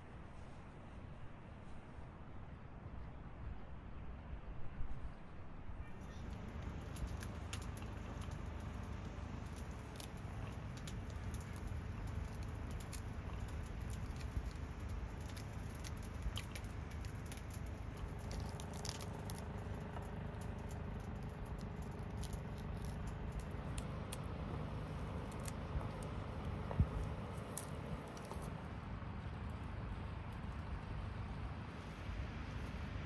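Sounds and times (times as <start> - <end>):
pomegranate peel crackling: 6.0 - 28.6.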